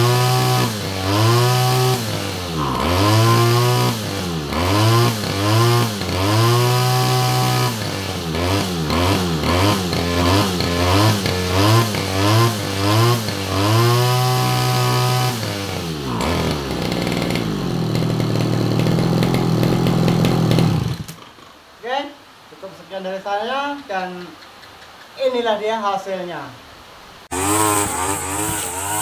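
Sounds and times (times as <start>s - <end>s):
brush cutter engine revving: 0.0s - 21.4s, 27.3s - 29.0s.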